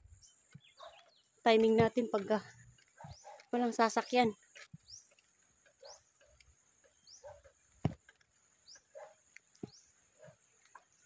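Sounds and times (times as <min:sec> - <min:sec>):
lower squeaky calls: 0:00.2 - 0:07.6.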